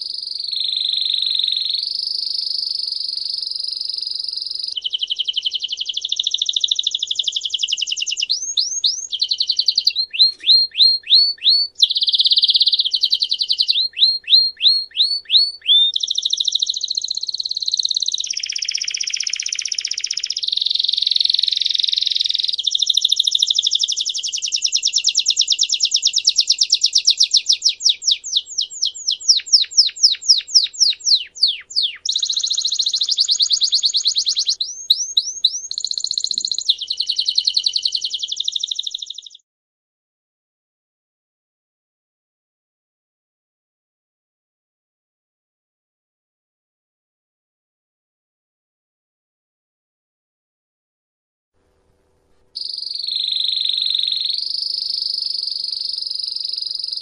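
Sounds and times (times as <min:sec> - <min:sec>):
canary singing trills: 0:00.0 - 0:39.4, 0:52.6 - 0:57.0.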